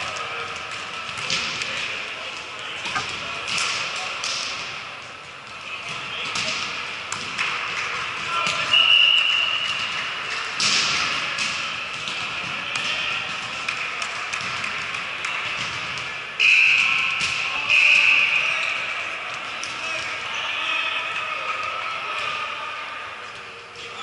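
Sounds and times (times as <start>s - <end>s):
players' voices: 0.0s - 24.0s
referee's whistle: 8.6s - 9.7s, 16.4s - 18.9s.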